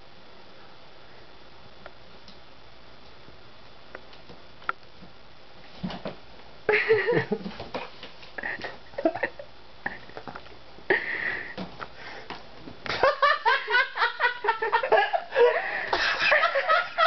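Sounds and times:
person laughing hard: 0:06.7 - 0:07.6, 0:08.4 - 0:10.3, 0:10.9 - 0:11.6, 0:12.9 - 0:17.0.

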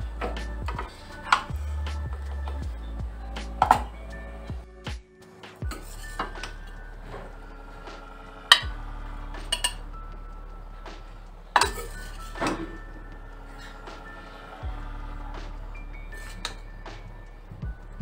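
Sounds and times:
metal spoon scraping pan and plate: 0:05.7 - 0:07.3, 0:09.4 - 0:09.8.

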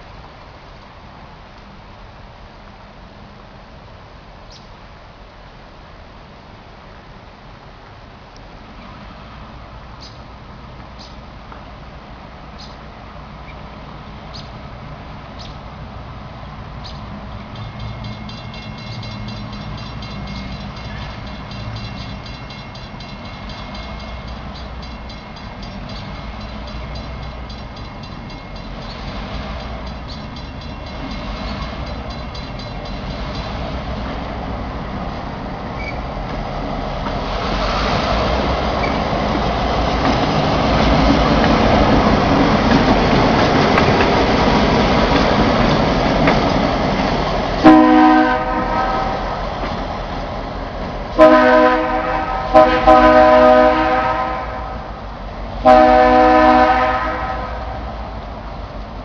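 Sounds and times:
diesel locomotive engine rumble: 0:00.0 - 0:59.0
train horn blast: 0:47.6 - 0:49.6, 0:51.2 - 0:58.0.

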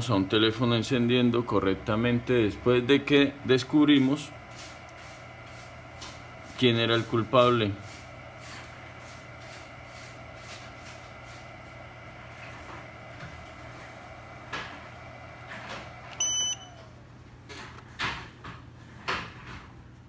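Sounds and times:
electrical hum: 0:00.0 - 0:20.0
short high beep: 0:16.2 - 0:16.9.

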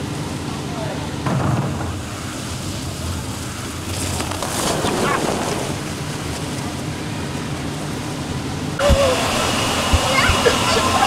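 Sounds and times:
water running down slide: 0:01.6 - 0:06.8, 0:08.8 - 0:11.0
rider splashing through water: 0:02.1 - 0:06.9.

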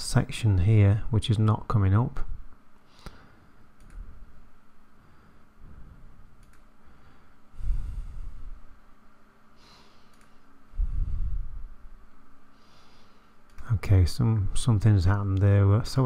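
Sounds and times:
person breathing: 0:02.8 - 0:04.2, 0:04.9 - 0:08.7, 0:09.5 - 0:11.8, 0:12.5 - 0:13.5
mouse clicks: 0:06.4 - 0:06.7.

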